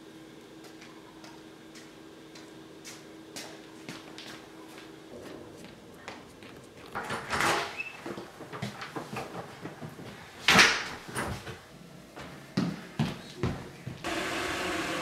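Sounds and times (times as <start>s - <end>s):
running footsteps on wood floor: 0.6s - 7.1s.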